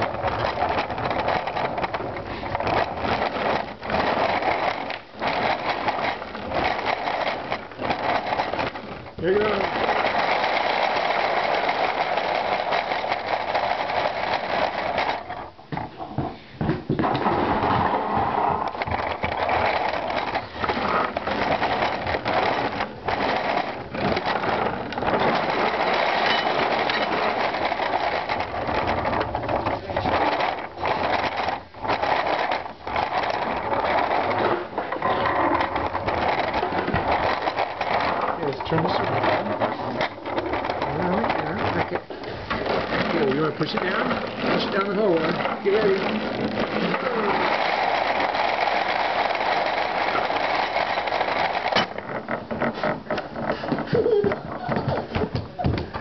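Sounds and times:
toy rattling across a wooden floor: 0.0s - 56.0s.

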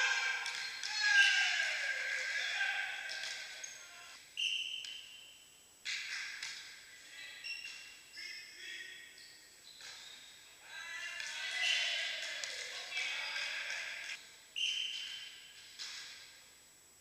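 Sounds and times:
volleyball impacts: 0.0s - 3.6s
players shouting: 0.0s - 4.2s
shoes squeaking on court: 7.4s - 10.5s, 14.6s - 16.2s.

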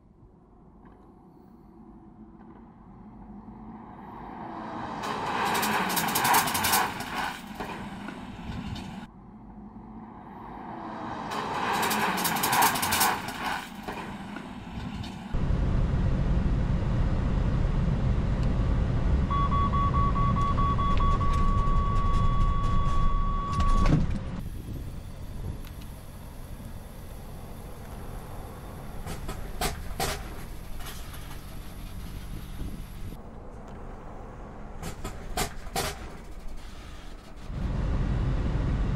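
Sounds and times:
truck passing: 3.1s - 20.7s, 24.4s - 38.9s
warning beeps: 19.3s - 23.8s.

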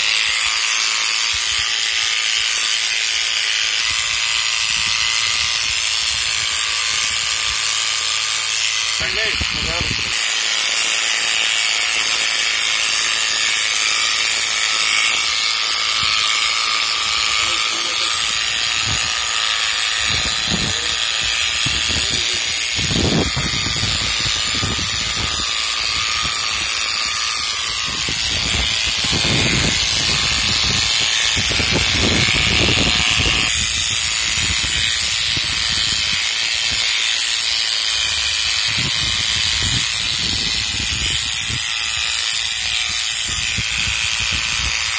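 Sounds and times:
electric clipper buzzing: 0.0s - 44.9s.

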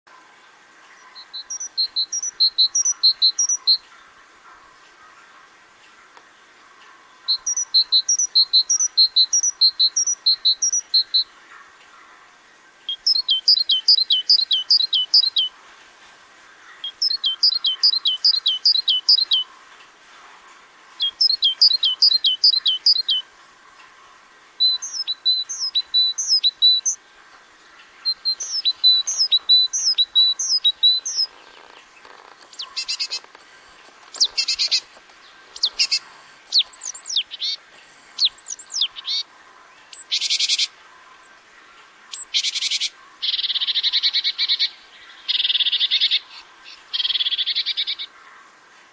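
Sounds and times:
harsh rasping bird chatter: 28.1s - 37.6s.

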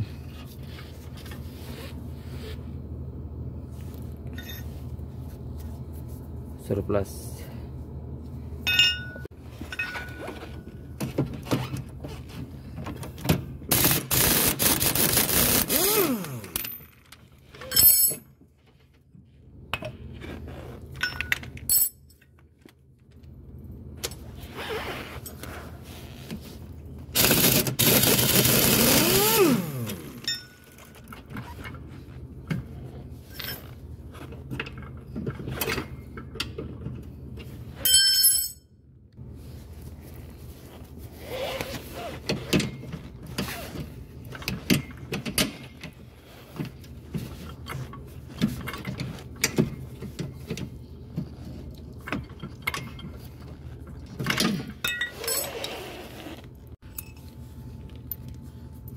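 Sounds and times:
clinks of tools: 4.3s - 4.7s, 8.7s - 10.7s, 20.9s - 22.4s, 30.2s - 31.8s, 37.9s - 38.7s, 54.2s - 55.8s, 56.9s - 57.3s
air impact wrench running: 13.7s - 16.6s, 27.2s - 30.3s.

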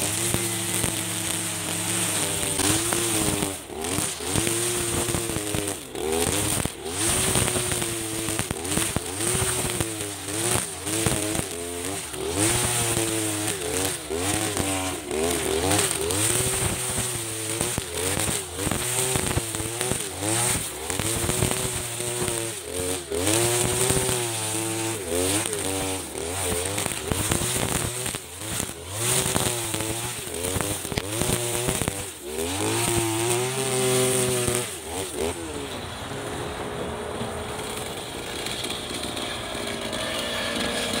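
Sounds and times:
brush cutter engine cutting grass: 0.0s - 41.0s.

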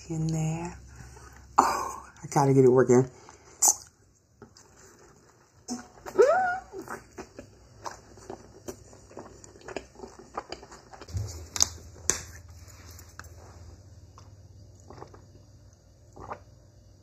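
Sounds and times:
wet chewing and mouth clicks: 3.3s - 13.4s, 14.1s - 16.5s
person drinking: 14.1s - 16.6s.

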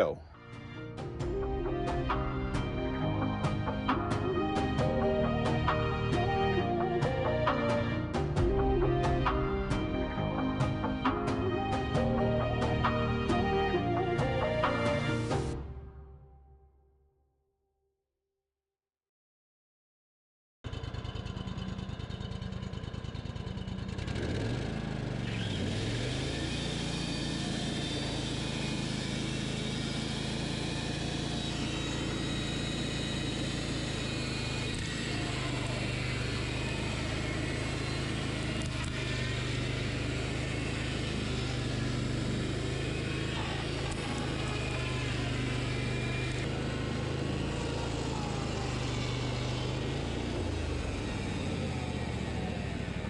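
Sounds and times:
sawmill engine under load: 0.0s - 15.6s, 20.7s - 53.0s
band blade cutting log: 24.2s - 51.6s.

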